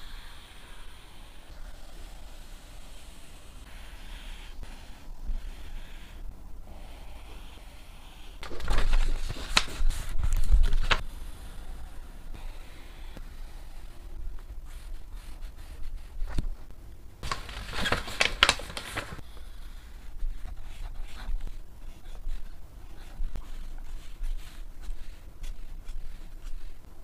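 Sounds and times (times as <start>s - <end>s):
paper rustling and tapping: 8.4s - 11.0s, 17.2s - 19.2s
paper sliding and crinkling: 8.4s - 11.1s, 17.2s - 19.2s.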